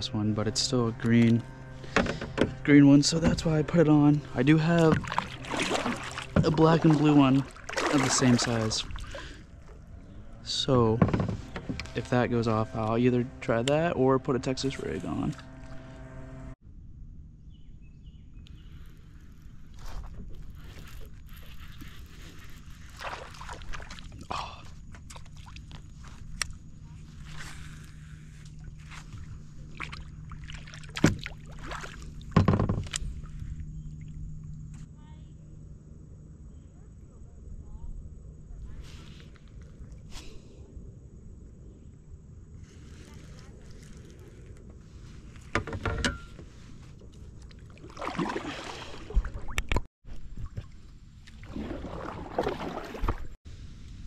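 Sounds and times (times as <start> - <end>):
paddle water splashing: 0.8 - 10.0, 19.2 - 34.3, 42.6 - 45.7, 46.4 - 53.4
kayak clattering: 0.9 - 9.2
paddle knocking against hull: 1.8 - 3.6, 4.8 - 8.4, 30.5 - 33.0.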